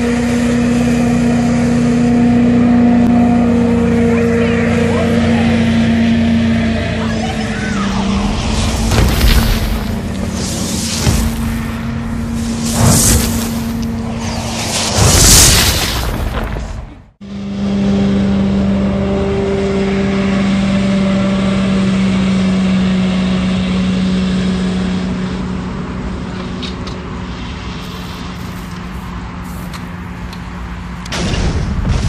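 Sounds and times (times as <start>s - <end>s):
hovercraft engine droning: 0.0s - 31.6s
explosion blast: 7.4s - 17.1s, 31.2s - 32.0s.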